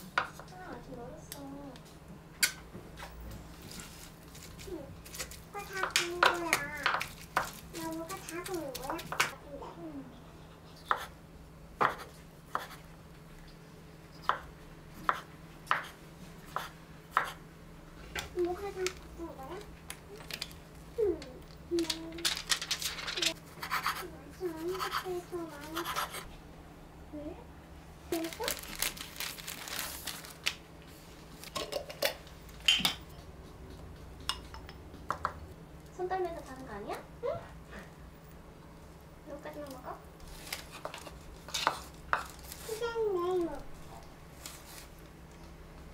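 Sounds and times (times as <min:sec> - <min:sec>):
plastic crinkling: 0:03.6 - 0:09.1, 0:18.3 - 0:23.4, 0:28.1 - 0:30.6, 0:39.5 - 0:43.7.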